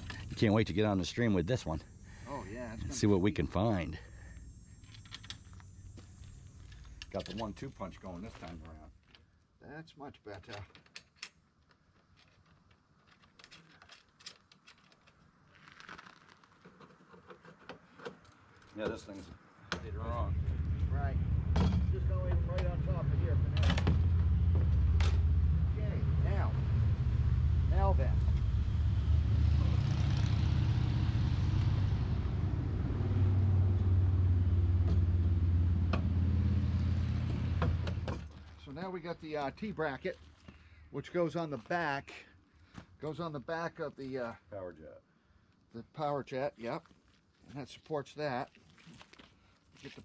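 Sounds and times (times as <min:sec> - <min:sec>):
motor idling hum: 0:19.9 - 0:29.8.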